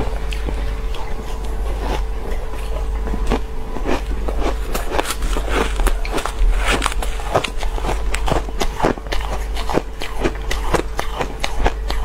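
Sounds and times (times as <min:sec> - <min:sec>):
ice crunching while chewed: 0:00.0 - 0:12.0
low hum: 0:00.0 - 0:12.0.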